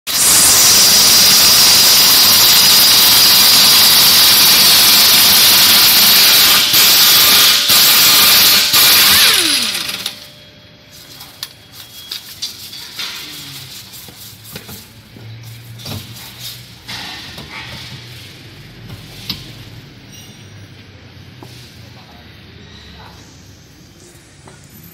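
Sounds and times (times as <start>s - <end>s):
pneumatic impact wrench: 0.1s - 10.3s.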